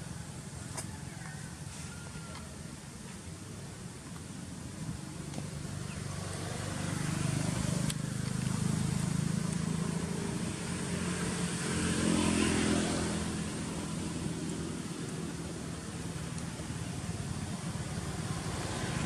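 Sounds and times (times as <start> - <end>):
vehicle engine passing by: 5.5 - 19.0.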